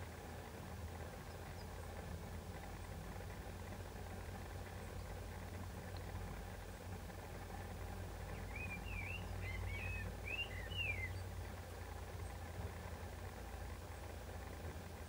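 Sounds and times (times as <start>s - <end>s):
songbird warbling: 8.3s - 11.3s.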